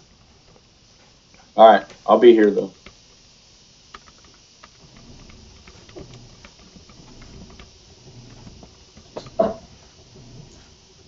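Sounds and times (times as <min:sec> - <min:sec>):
muffled room sounds: 0:00.0 - 0:11.0.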